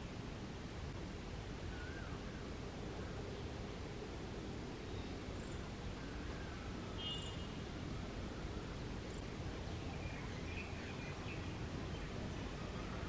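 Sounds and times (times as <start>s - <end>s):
faint bird chirps: 1.7s - 2.4s, 4.8s - 13.0s.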